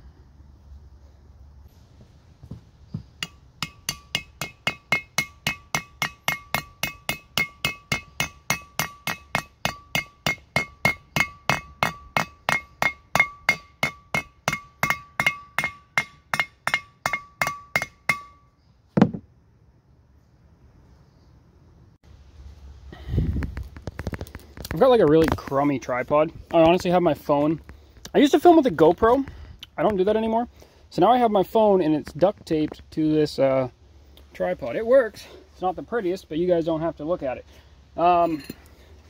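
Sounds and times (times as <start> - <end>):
hammer striking metal: 3.2 - 18.5
dull thud: 18.9 - 19.3.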